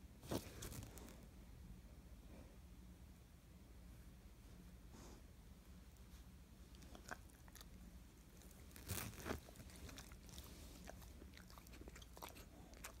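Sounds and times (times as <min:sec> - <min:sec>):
dog crunching a treat: 0:06.7 - 0:13.0.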